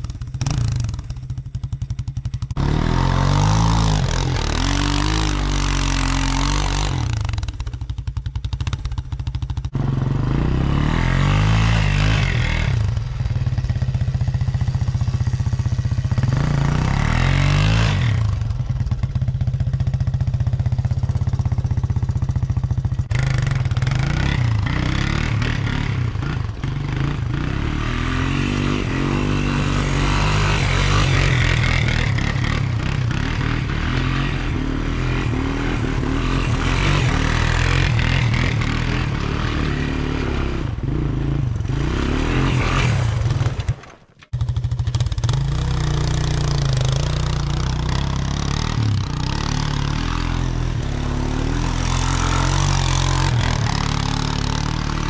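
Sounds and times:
engine revving under load: 2.3s - 7.6s, 9.6s - 19.0s, 23.0s - 55.0s.

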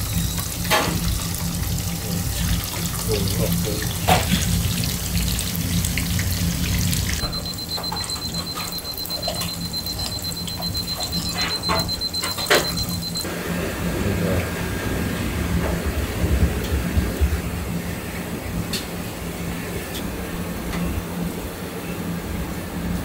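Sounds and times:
oil sizzling in deep fryer: 0.0s - 20.0s
kitchen hum: 0.0s - 23.0s
thin high tone: 7.2s - 13.3s.

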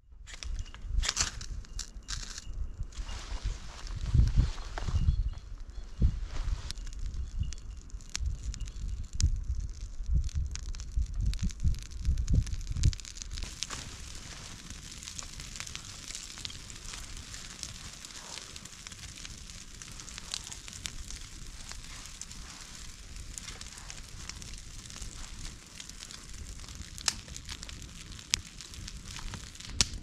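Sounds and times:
campfire crackling and popping: 0.3s - 3.1s, 5.0s - 30.0s
loud wood snaps: 1.0s - 2.4s, 23.4s - 30.0s.

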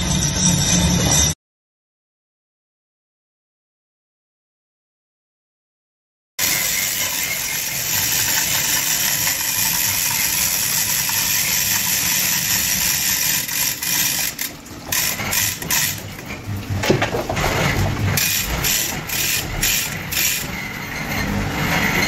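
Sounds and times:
workshop machinery running: 0.0s - 1.4s, 6.4s - 22.0s
mechanical clicks and knocks: 7.8s - 20.6s.

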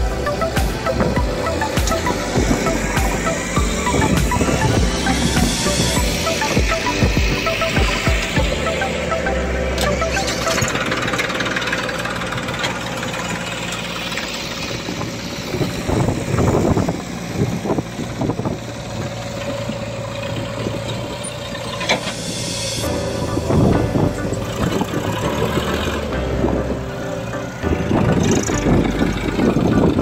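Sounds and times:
kick drum beat: 0.0s - 8.6s
bright melody notes: 0.0s - 13.7s, 22.1s - 30.0s
tractor diesel engine running: 0.0s - 30.0s.

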